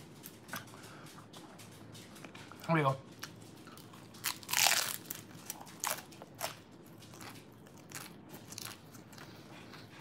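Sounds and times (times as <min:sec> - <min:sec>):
crunchy chewing: 0:03.2 - 0:10.0.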